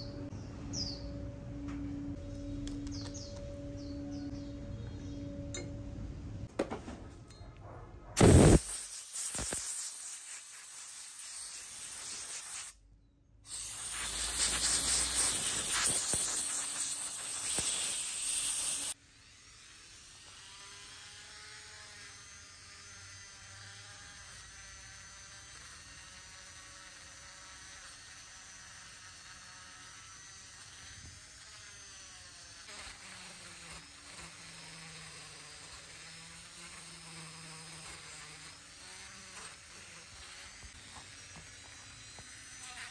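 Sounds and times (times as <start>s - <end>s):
loud rough hissing: 8.2s - 12.8s, 13.5s - 19.0s
rotary tool buzzing whine: 8.2s - 12.8s, 13.5s - 42.9s.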